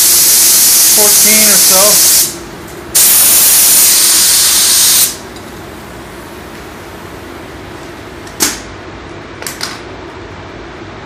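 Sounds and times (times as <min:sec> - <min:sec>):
paint spray gun hissing: 0:00.0 - 0:02.4, 0:03.0 - 0:05.2
air blasts: 0:00.0 - 0:05.2.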